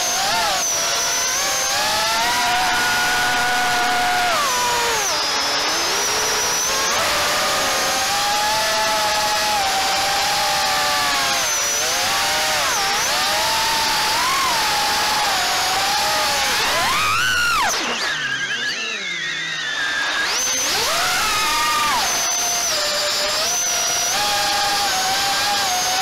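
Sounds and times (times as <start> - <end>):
drone motors whining: 0.0 - 26.0.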